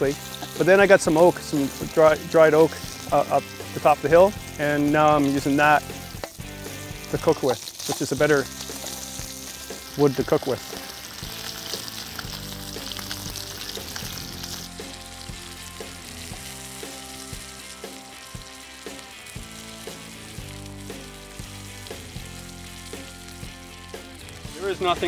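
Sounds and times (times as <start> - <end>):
background music: 0.0 - 25.0
fish sizzling in oil: 0.0 - 25.0.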